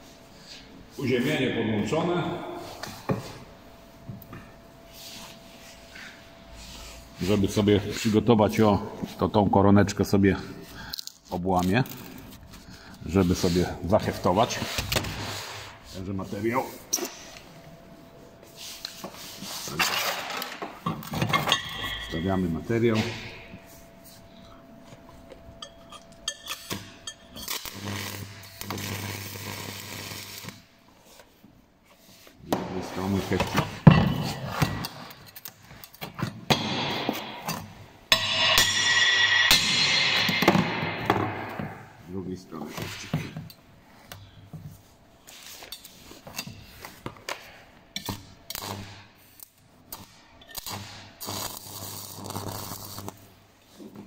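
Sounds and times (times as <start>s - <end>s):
welding electrode scraping metal: 25.6s - 30.7s, 48.0s - 53.4s
welding arc crackling hiss: 26.5s - 30.7s, 36.9s - 41.2s, 48.0s - 53.8s.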